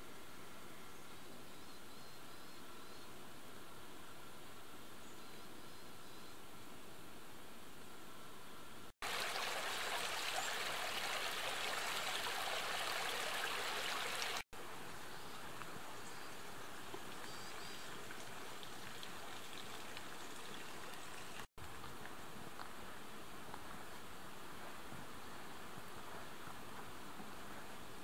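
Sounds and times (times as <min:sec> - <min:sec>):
mountain stream flowing: 0:09.0 - 0:21.5.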